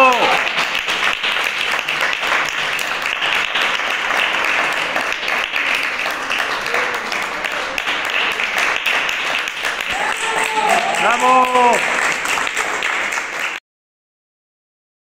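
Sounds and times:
audience applauding: 0.0 - 13.6
faint voices: 5.8 - 8.7.

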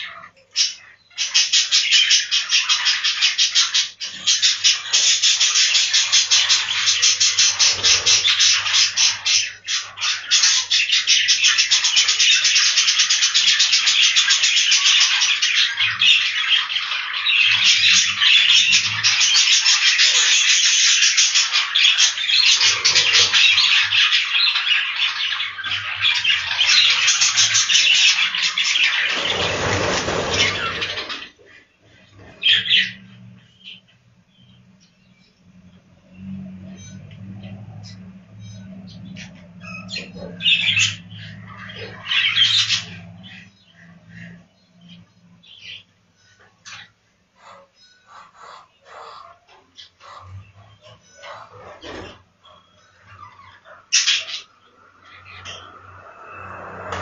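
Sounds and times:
budgerigars chattering and chirping: 0.0 - 57.0
broad rush of noise: 54.4 - 57.0.

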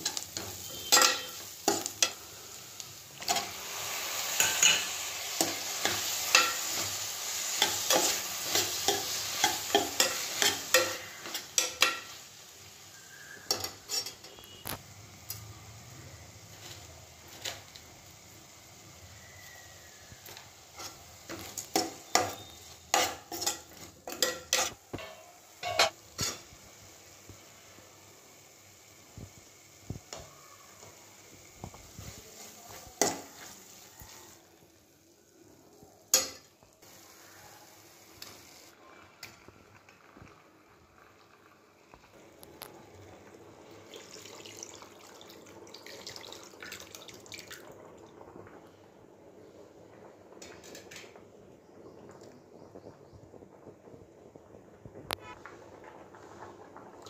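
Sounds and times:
spoon clinking and scraping pot: 0.0 - 2.3, 4.3 - 12.3, 13.1 - 14.7, 20.3 - 26.5
onions and tomatoes frying: 0.0 - 57.0
liquid pouring and splashing: 43.1 - 48.4.

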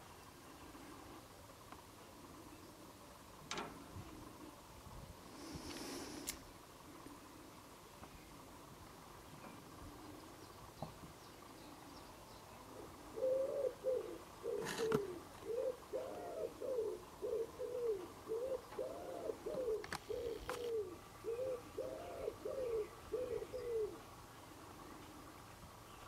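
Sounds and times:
pigeon cooing: 12.7 - 25.4.

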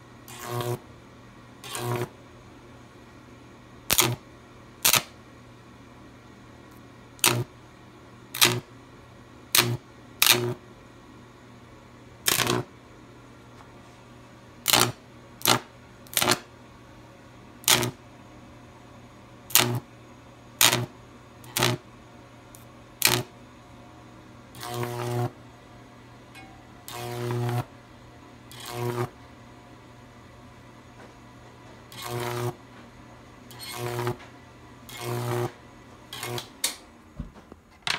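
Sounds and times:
faint steady hum: 0.0 - 37.9
electric arc buzzing: 0.3 - 0.8, 1.6 - 2.1, 3.9 - 4.2, 4.8 - 5.1, 7.2 - 7.5, 8.4 - 8.7, 9.5 - 10.6, 12.2 - 12.7, 14.6 - 16.5, 17.6 - 18.0, 19.5 - 19.9, 20.6 - 21.8, 22.5 - 23.3, 24.5 - 25.4, 26.4 - 27.7, 28.5 - 29.2, 31.9 - 32.6, 33.5 - 34.2, 34.9 - 36.5
transformer buzz: 24.6 - 25.4, 26.4 - 27.7, 28.5 - 29.2, 33.5 - 34.2, 34.9 - 36.5.

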